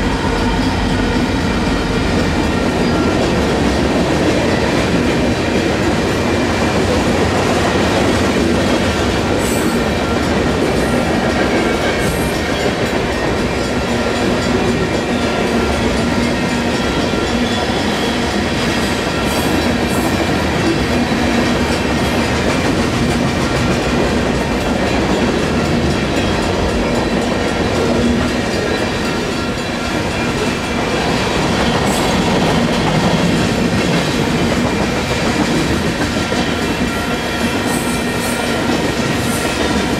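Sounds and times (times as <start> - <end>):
train wheels rumbling and clacking: 0.0 - 39.9.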